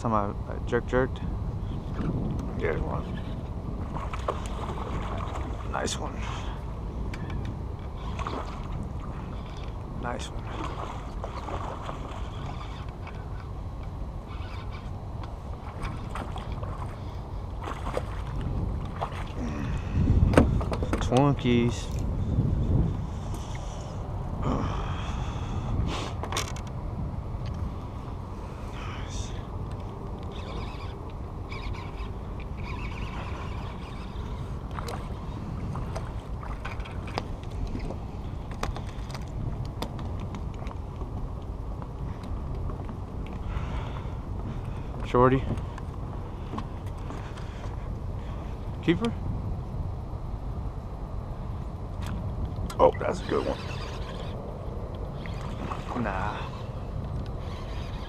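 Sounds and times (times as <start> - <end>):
wind rumble on microphone: 0.0 - 58.0
microphone handling bumps: 20.0 - 21.1.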